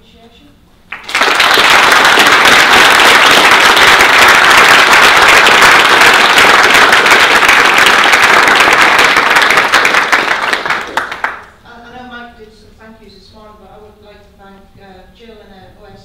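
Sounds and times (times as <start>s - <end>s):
audience applauding: 0.9s - 11.5s.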